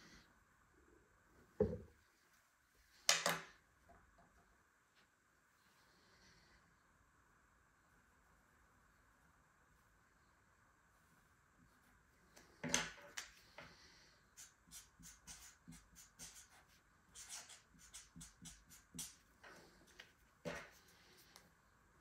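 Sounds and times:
marker pen scratching on paper: 0:14.4 - 0:21.1.

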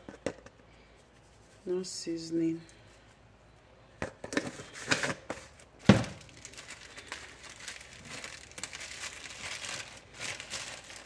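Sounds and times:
packets rustling: 0:04.4 - 0:11.0.

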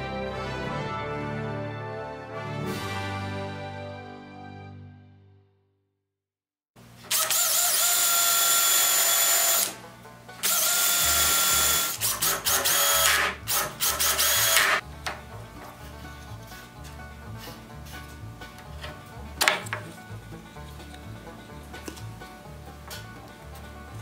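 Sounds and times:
cordless drill into wood: 0:07.1 - 0:09.8, 0:10.4 - 0:14.8.

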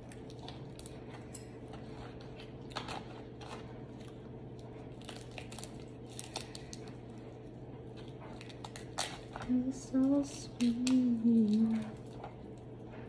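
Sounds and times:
crab shells cracking: 0:00.0 - 0:01.3, 0:02.2 - 0:07.1, 0:08.0 - 0:09.5
faint steady hum: 0:00.0 - 0:13.0
foil crinkling: 0:02.1 - 0:07.2, 0:08.0 - 0:12.2.

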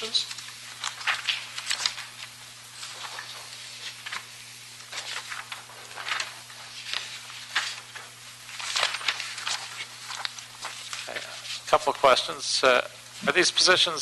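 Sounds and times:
low electrical hum: 0:00.0 - 0:14.0
soft clicks and rustles: 0:04.9 - 0:11.6.

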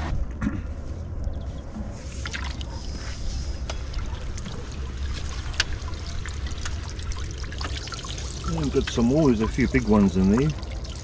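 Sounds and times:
sharp drips and clicks: 0:02.2 - 0:02.9, 0:03.6 - 0:11.0
water dripping off net: 0:04.3 - 0:11.0.

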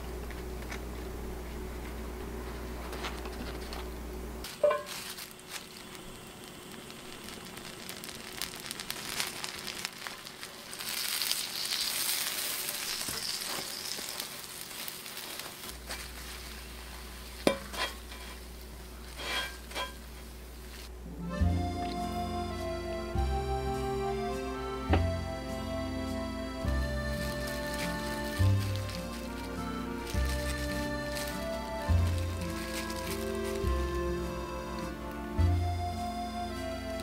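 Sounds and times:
butter sizzling in a pan: 0:04.5 - 0:20.9, 0:26.6 - 0:37.0.

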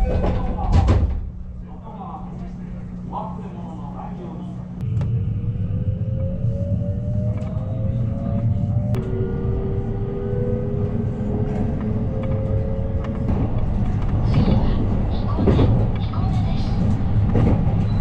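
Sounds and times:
train wheels rumbling on rails: 0:04.8 - 0:18.0.

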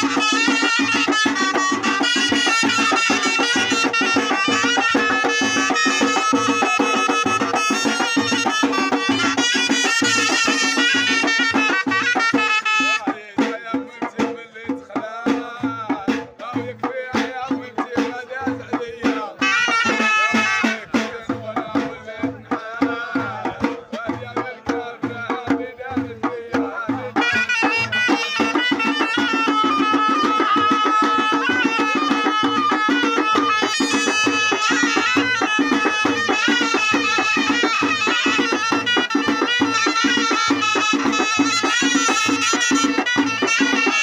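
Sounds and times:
double-headed drum beat: 0:00.0 - 0:44.0
men singing: 0:00.0 - 0:44.0
reed shawm melody: 0:27.2 - 0:44.0.

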